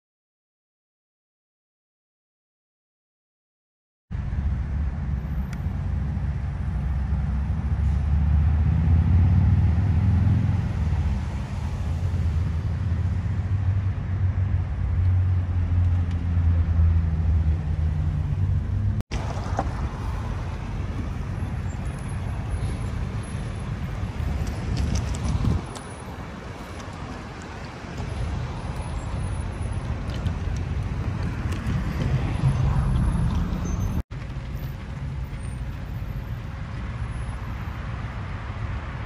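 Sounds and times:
road traffic noise: 0:04.1 - 0:39.0
heavy vehicle engines idling: 0:10.9 - 0:39.0.

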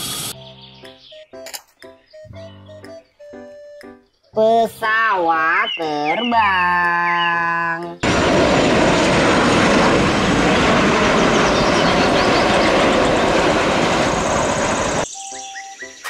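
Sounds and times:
jet engines at takeoff: 0:00.0 - 0:00.4, 0:08.0 - 0:15.2.

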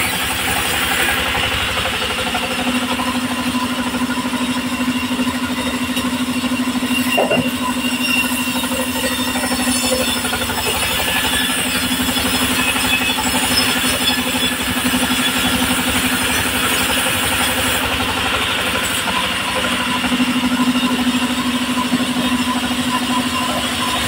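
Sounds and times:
engine droning: 0:00.0 - 0:24.0
saw blade rasping through log: 0:02.1 - 0:24.0.

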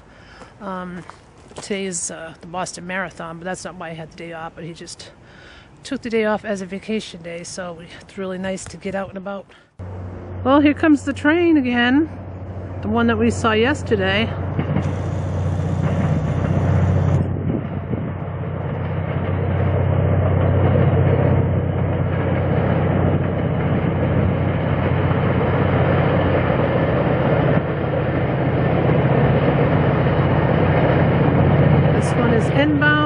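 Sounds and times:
diesel locomotive hum: 0:00.0 - 0:33.0
train coaches rumbling on rails: 0:09.8 - 0:33.0.

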